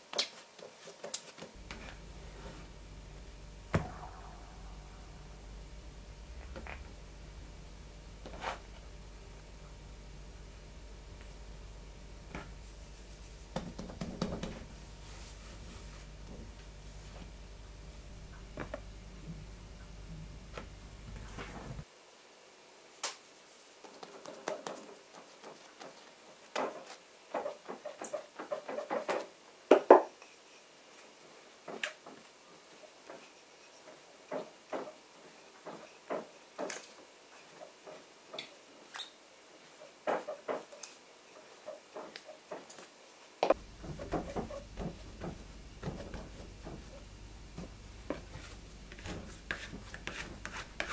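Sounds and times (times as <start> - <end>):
low hum: 1.6 - 13.5, 14.6 - 21.8
hands rolling out bread dough: 5.8 - 9.9, 12.2 - 17.4, 23.2 - 39.0, 43.5 - 50.9.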